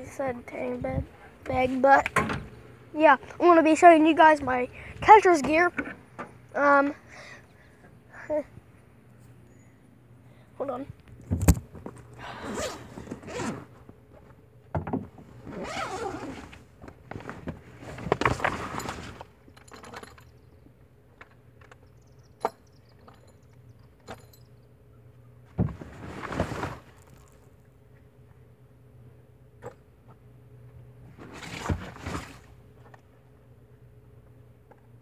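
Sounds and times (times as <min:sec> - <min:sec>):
zipper being pulled: 0:12.4 - 0:13.7, 0:15.4 - 0:16.6, 0:26.0 - 0:27.4
scraping and rustling of gear: 0:15.4 - 0:20.2, 0:25.8 - 0:27.6.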